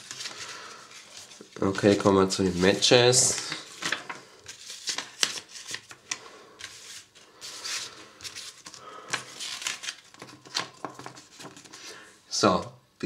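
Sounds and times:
paper rustling: 0:00.0 - 0:12.0.

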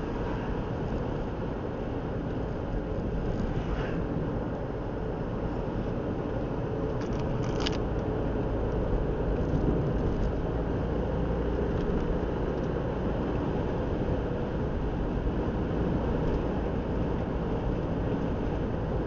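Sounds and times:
car tyres and engine rumble: 0:00.0 - 0:19.0.

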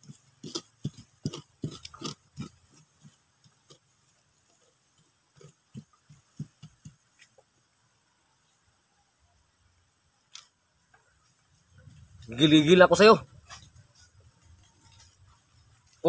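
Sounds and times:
wooden pestle pounding thuds: 0:05.4 - 0:07.0.

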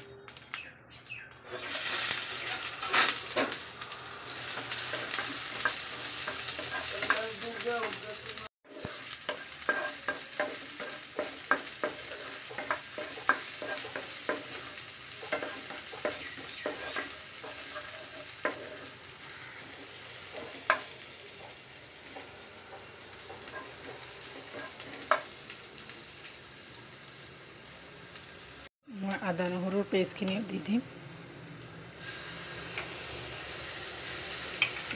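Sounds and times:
onions sizzling in oil: 0:00.4 - 0:34.9.

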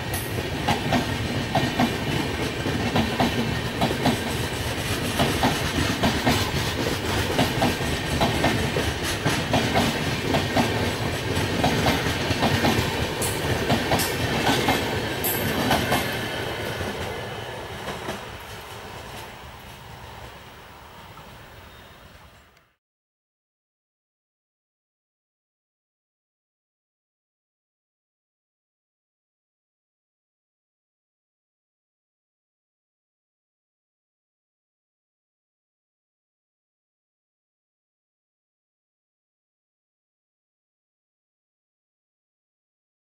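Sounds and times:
train wheels clattering on rail joints: 0:00.0 - 0:19.8.

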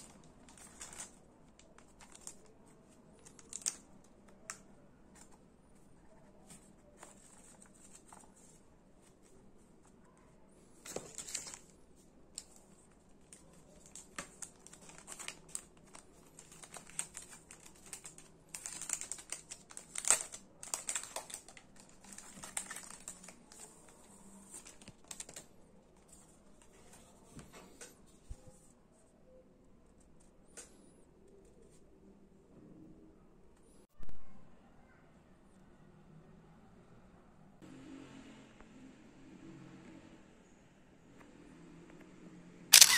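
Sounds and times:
packaging crinkling: 0:00.0 - 0:02.6, 0:13.2 - 0:23.7, 0:24.5 - 0:25.5.

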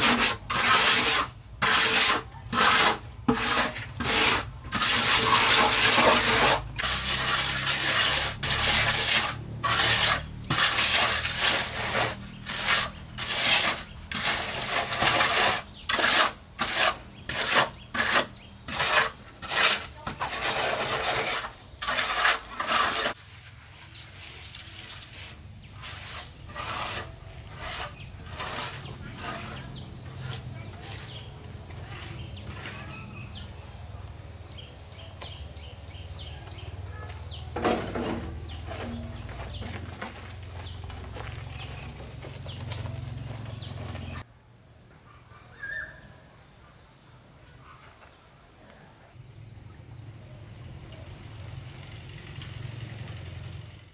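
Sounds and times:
trowel scraping wet cement: 0:00.0 - 0:33.5, 0:37.6 - 0:41.8.

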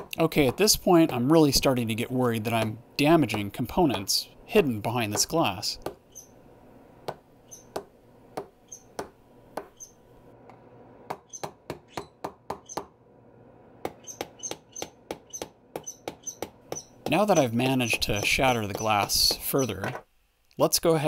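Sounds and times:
screwdriver tapping glass: 0:14.0 - 0:20.0.

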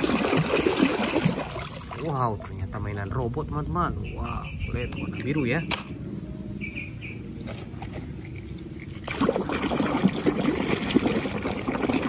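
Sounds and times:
water splashing and sloshing: 0:00.0 - 0:03.6, 0:07.4 - 0:12.0.

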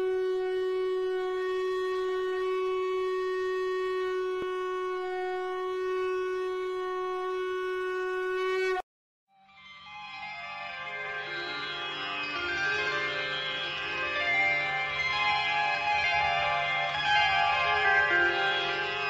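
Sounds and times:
conch shell blown: 0:00.0 - 0:08.8.

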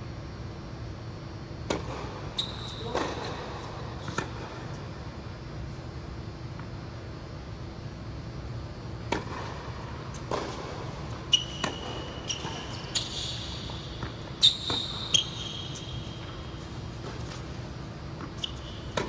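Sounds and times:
tennis ball struck and bouncing: 0:01.6 - 0:02.2, 0:04.0 - 0:04.6, 0:09.0 - 0:19.0
shoes squeaking on court: 0:01.7 - 0:05.0, 0:08.4 - 0:19.0.

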